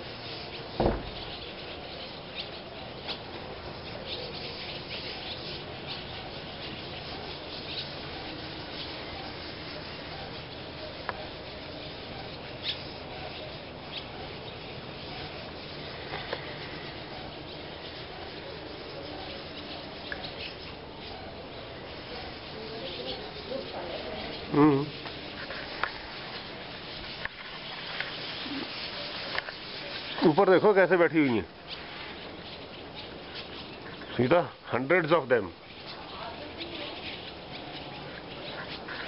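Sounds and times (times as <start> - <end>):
flock of birds chirping: 0.0 - 39.0
loud knock: 0.8 - 1.3.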